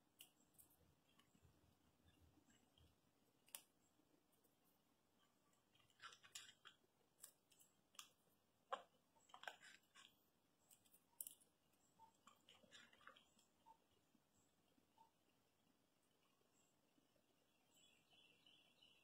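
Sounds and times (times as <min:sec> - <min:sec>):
squirrel cracking seeds: 0:00.0 - 0:13.8.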